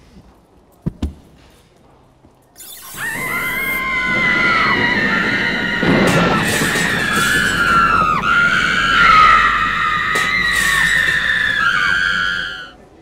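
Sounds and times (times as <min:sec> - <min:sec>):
people screaming: 0:02.6 - 0:12.8.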